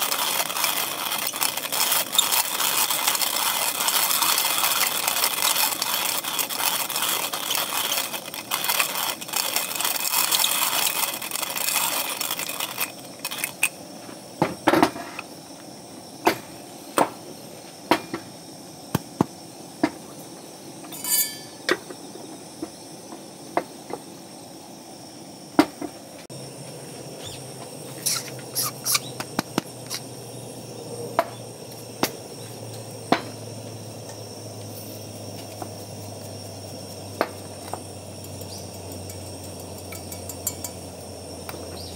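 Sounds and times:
coffee grinder crunching beans: 0:00.0 - 0:13.9
short squeak: 0:28.0 - 0:29.1.

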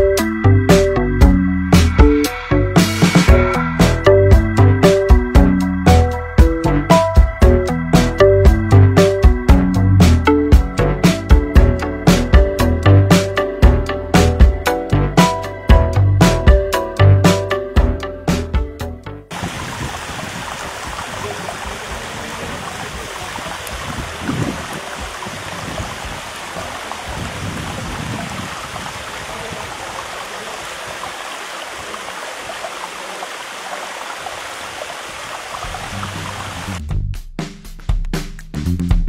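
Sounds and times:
music: 0:00.0 - 0:19.3, 0:36.7 - 0:39.0
water running down stone cascade: 0:19.3 - 0:36.8.

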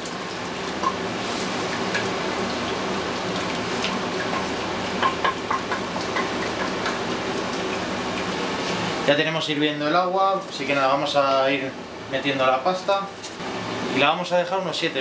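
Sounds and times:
milk sizzling in a pot: 0:00.0 - 0:09.3.

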